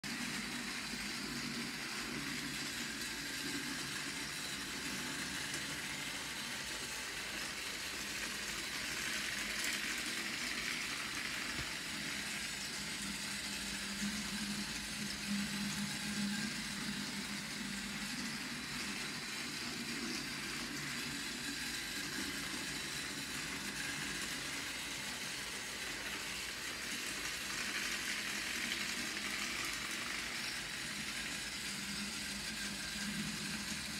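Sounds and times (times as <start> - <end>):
toy train motor whirring: 0.1 - 33.9.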